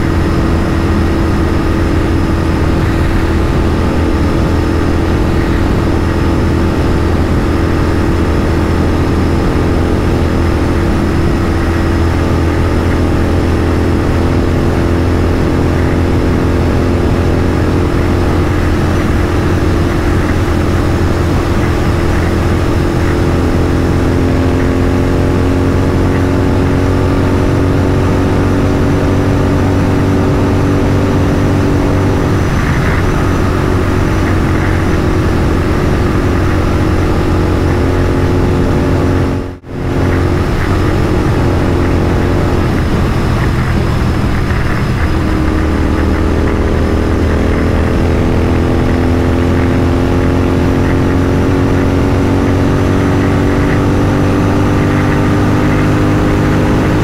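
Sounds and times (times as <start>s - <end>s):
motorcycle engine pulling hard: 0.0s - 57.0s
wind rush: 0.0s - 57.0s.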